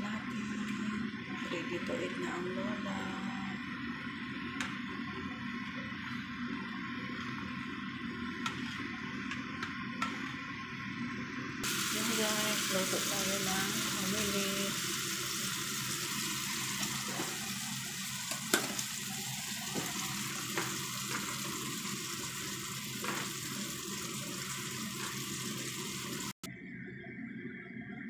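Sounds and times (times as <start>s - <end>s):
hot oil sizzling: 11.6s - 26.5s.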